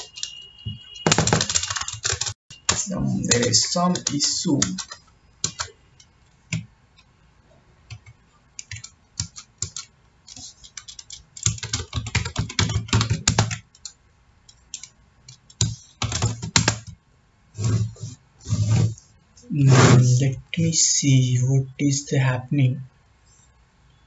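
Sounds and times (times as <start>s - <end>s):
computer keyboard typing: 0.0s - 7.1s, 7.9s - 17.0s.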